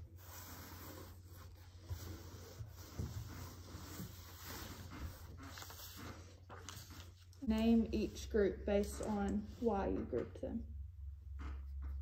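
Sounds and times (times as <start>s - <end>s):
paper rustling: 1.4s - 7.4s.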